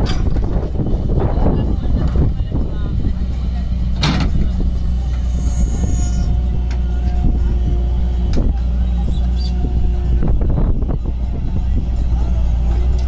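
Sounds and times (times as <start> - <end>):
diesel tractor engines idling: 0.0 - 13.0.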